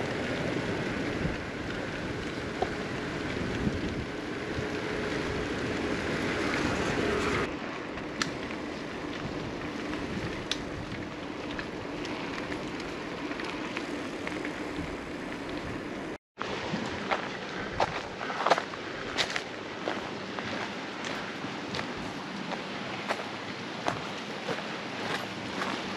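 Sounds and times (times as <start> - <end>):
wind rushing over microphone: 0.0 - 19.4
bicycle tyres rolling on pavement: 0.0 - 25.9.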